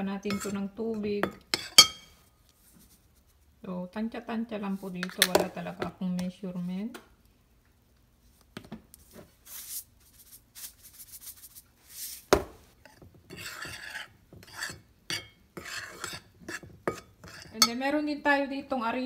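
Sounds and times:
spoon scraping flour in glass bowl: 0:00.2 - 0:00.7, 0:12.9 - 0:17.8.

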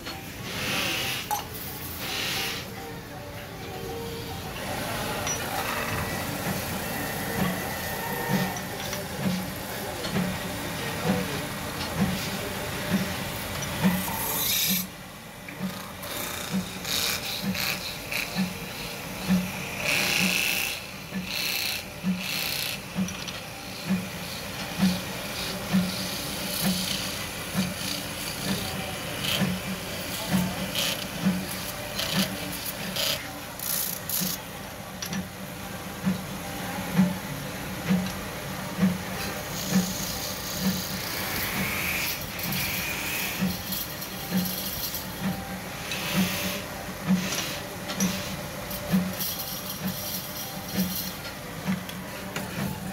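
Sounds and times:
tool scraping spinning metal: 0:13.0 - 0:14.9, 0:39.2 - 0:51.3.

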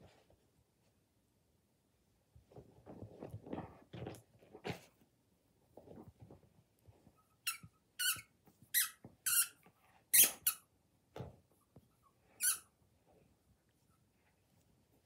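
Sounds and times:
squeaky dog toy squeaking: 0:07.4 - 0:10.6, 0:12.4 - 0:12.7.

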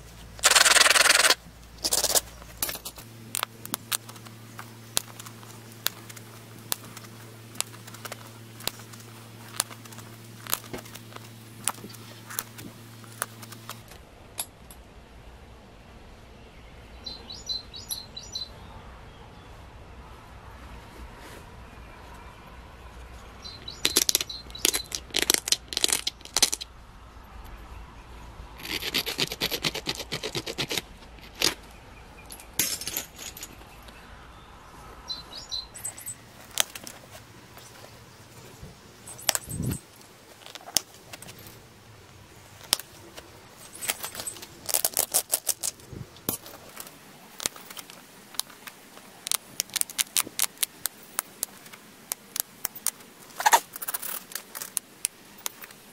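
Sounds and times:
sharp clicks of flakes popping: 0:00.4 - 0:13.8, 0:43.8 - 0:55.7
stone scratching flint: 0:00.4 - 0:13.9, 0:23.6 - 0:26.6, 0:28.6 - 0:31.6, 0:39.1 - 0:41.6, 0:43.6 - 0:55.8.

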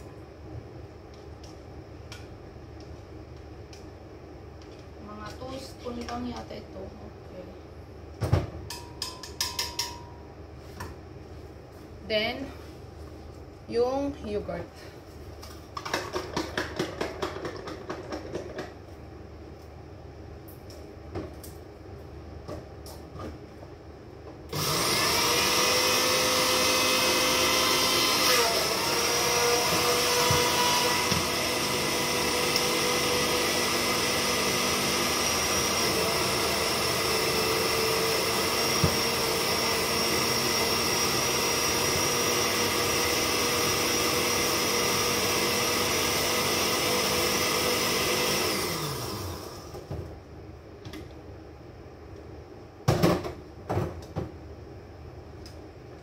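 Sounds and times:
blender motor whining: 0:24.5 - 0:49.8.

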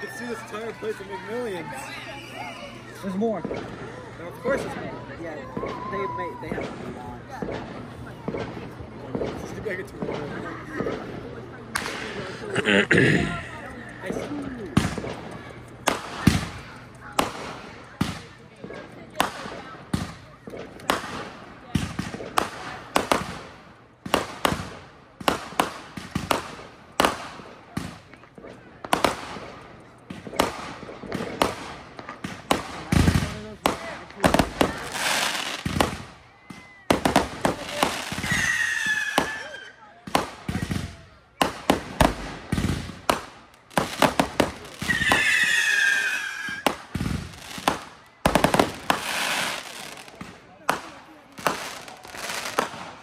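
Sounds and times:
fireworks bangs with echo: 0:02.8 - 0:12.4, 0:14.0 - 0:53.0
falling firework whistle: 0:38.2 - 0:39.8, 0:44.8 - 0:46.7.

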